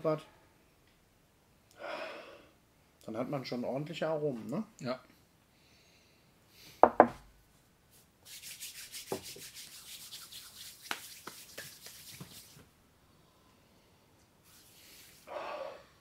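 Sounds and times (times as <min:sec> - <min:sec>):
hands rubbing swishing: 0:07.9 - 0:12.7, 0:14.4 - 0:15.3.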